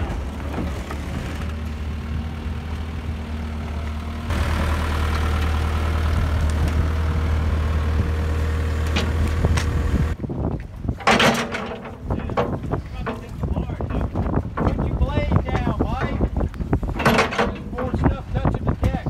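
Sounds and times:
excavator diesel engine: 0.0s - 10.2s.

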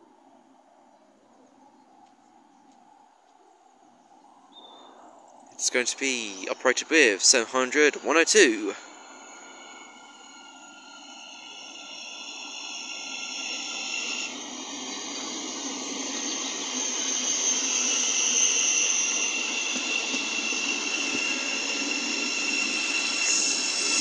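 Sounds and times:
train high whine: 4.2s - 24.0s
train wheels rushing: 5.6s - 24.0s.

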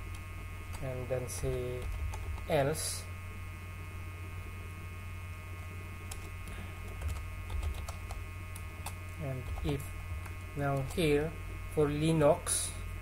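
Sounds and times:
electrical hum: 0.0s - 13.0s
keyboard typing clicks: 6.9s - 9.8s.

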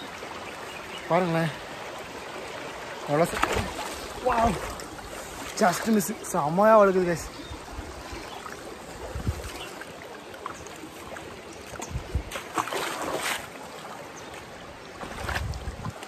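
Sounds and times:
stream water running: 0.0s - 16.0s
wind on microphone: 8.9s - 9.7s, 11.8s - 12.4s, 15.0s - 16.0s.

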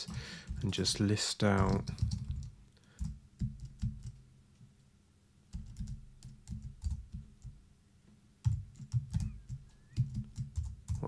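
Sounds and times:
typing on computer keyboard: 0.0s - 4.2s, 5.5s - 7.6s, 8.4s - 11.0s.

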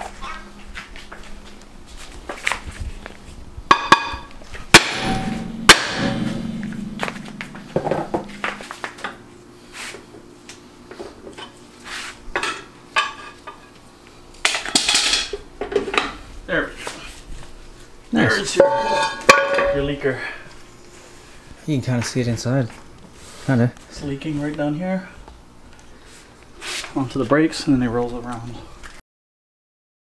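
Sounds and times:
low steady hum: 0.0s - 10.8s, 17.1s - 22.5s
metal tools clanking on metal: 3.7s - 8.7s, 18.5s - 19.9s
loud sharp strikes: 4.7s - 9.2s.

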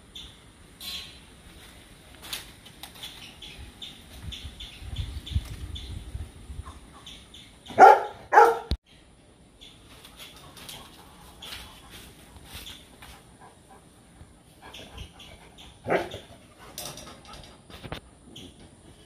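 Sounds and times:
dog barking: 7.7s - 8.7s, 15.9s - 16.2s.

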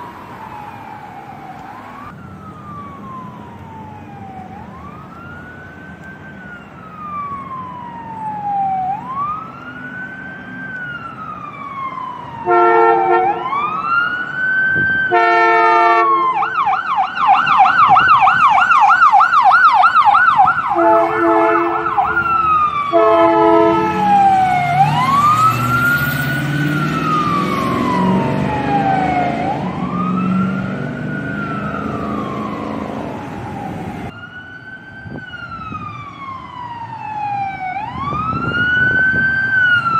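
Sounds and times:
ambulance engine rumbling: 0.0s - 39.9s
ambulance siren wailing and yelping: 0.0s - 39.9s
horn blasts: 12.4s - 13.6s, 15.1s - 16.4s, 20.7s - 22.3s, 22.9s - 24.1s.

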